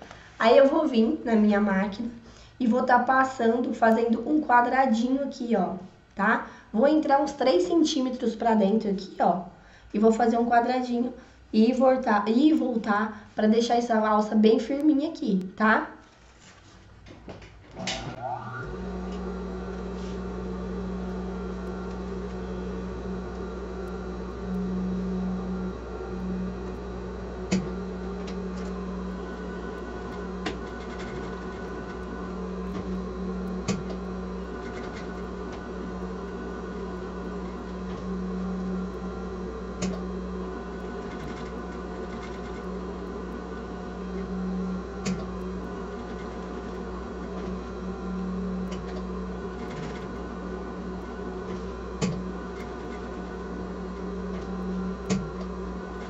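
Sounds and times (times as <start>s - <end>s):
sewing machine running: 18.2s - 56.0s.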